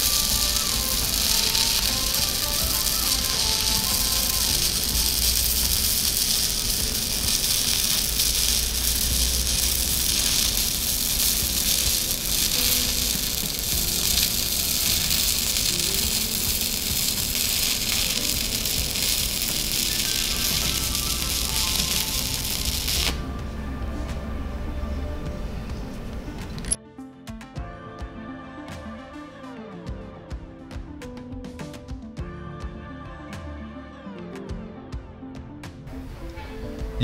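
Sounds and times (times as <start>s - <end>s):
welding arc crackling: 0.0s - 23.4s
soft background music: 0.0s - 37.0s.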